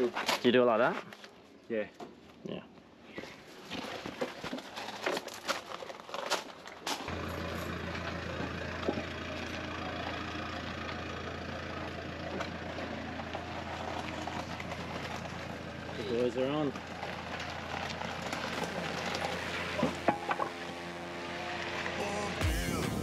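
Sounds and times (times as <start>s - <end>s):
engine idling: 7.0s - 23.0s.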